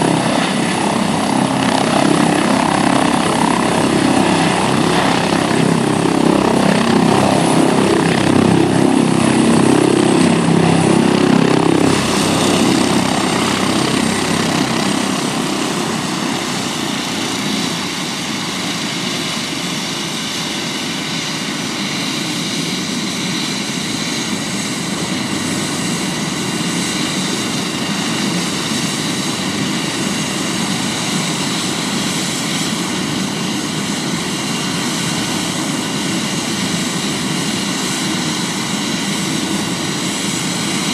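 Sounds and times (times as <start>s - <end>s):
helicopter rotor: 0.0s - 40.9s
turbine whine: 0.0s - 40.9s.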